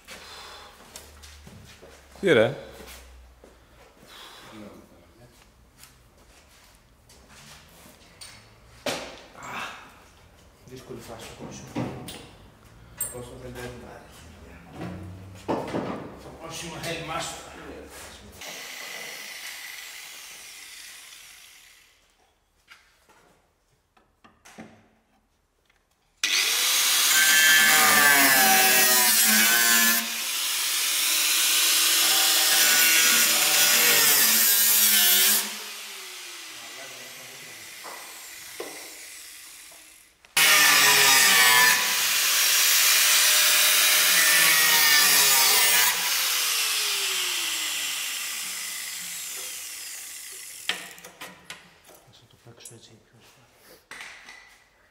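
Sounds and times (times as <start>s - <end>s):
angle grinder cutting sheet metal: 18.4s - 22.0s, 26.2s - 51.0s.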